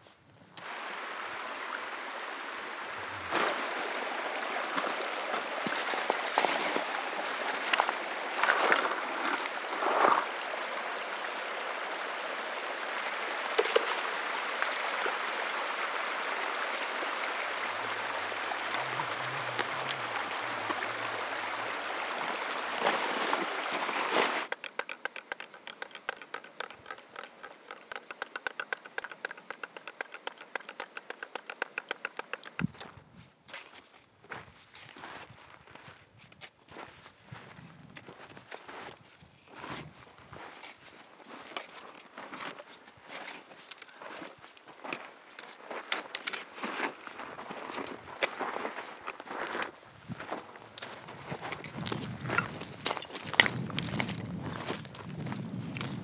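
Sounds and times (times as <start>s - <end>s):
water splashes: 0.6s - 24.5s
stream rushing over ice and rock: 0.6s - 32.7s, 39.6s - 56.0s
quiet rapid ticking: 24.5s - 32.6s.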